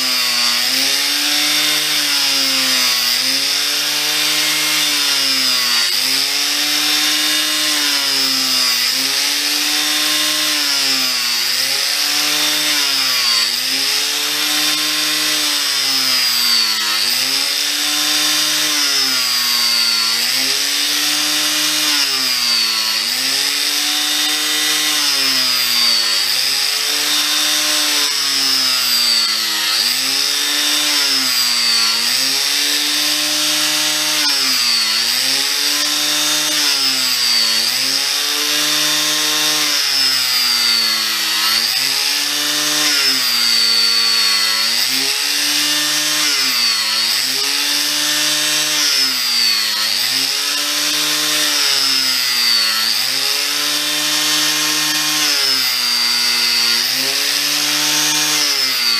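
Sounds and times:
angle grinder grinding wood: 0.0s - 58.9s.

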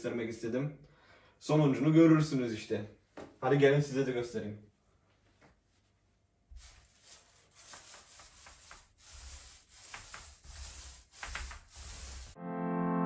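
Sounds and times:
paint roller swishing: 6.5s - 12.4s.

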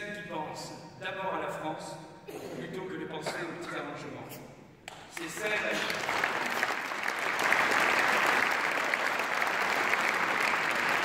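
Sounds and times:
large audience applauding: 4.9s - 11.0s.

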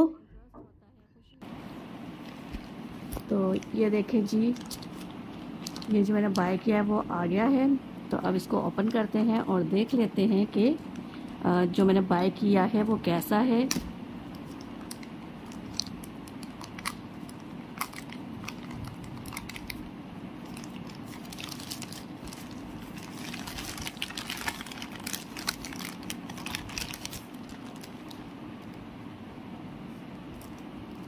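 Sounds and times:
plastic bag crinkling and tearing: 4.4s - 6.3s, 14.4s - 28.7s.

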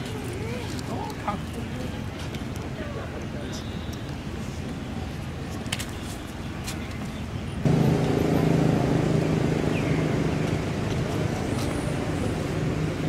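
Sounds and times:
low engine hum: 7.4s - 13.0s.

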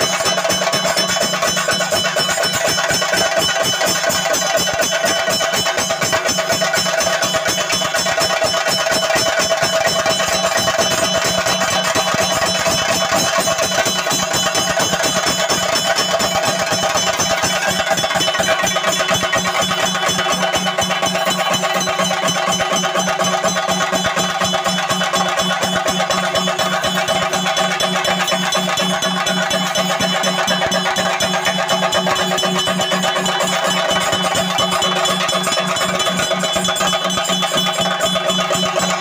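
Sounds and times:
drums beaten in fast rhythm: 0.0s - 39.0s
ringing cymbals: 0.0s - 39.0s.

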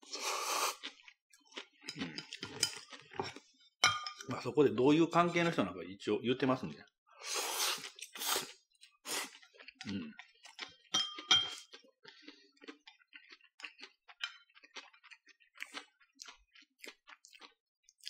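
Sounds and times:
person slurping noodles: 0.0s - 1.1s, 7.2s - 9.4s
chewing: 0.6s - 3.5s, 8.8s - 18.0s.

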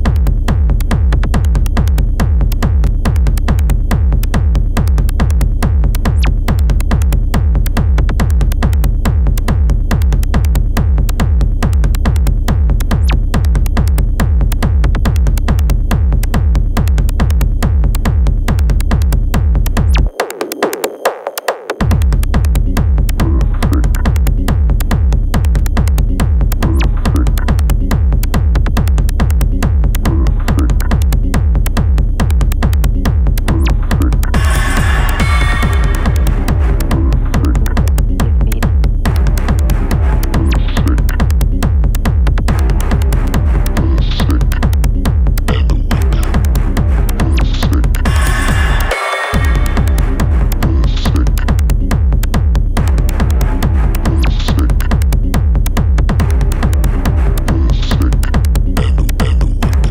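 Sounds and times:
heavy bass: 0.0s - 21.1s, 21.8s - 59.9s
drum machine beat: 0.0s - 59.9s
synth sounds: 33.5s - 41.2s, 45.5s - 51.5s.

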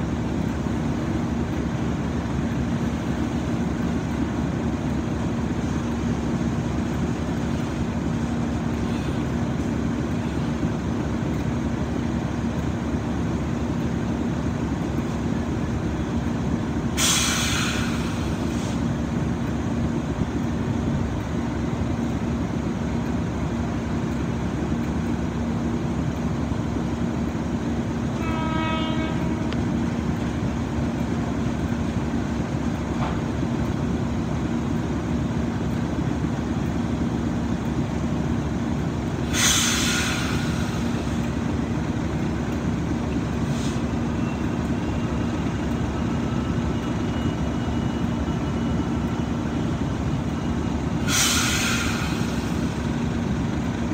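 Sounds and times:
diesel locomotive engine idling: 0.0s - 53.9s
hissing air bursts: 17.0s - 18.9s, 39.2s - 41.2s, 51.0s - 52.8s
brief horn-like tone: 28.2s - 29.6s.

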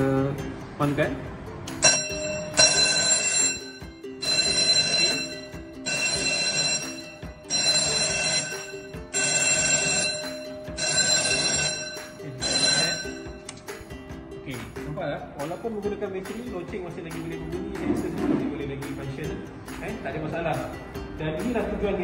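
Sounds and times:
fire alarm bell ringing: 1.8s - 13.5s.

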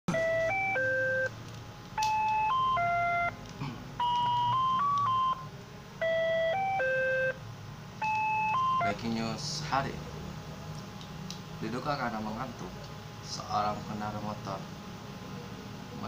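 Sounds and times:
electronic beep jingle: 0.1s - 1.3s, 2.0s - 3.4s, 4.0s - 7.4s, 8.0s - 9.0s.

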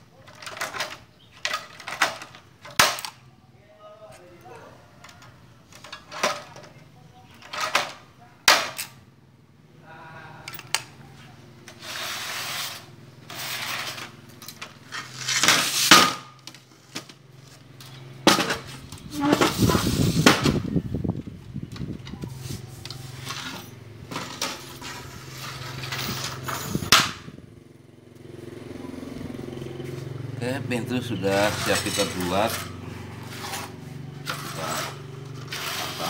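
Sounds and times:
panels scraping and rattling on tiles: 0.0s - 3.3s, 4.8s - 9.0s, 11.6s - 20.7s, 21.6s - 27.0s, 30.9s - 36.0s.

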